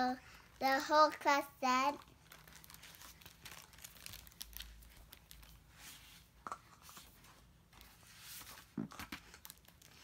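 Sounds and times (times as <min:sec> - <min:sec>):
book pages rustling and turning: 0:01.9 - 0:10.0.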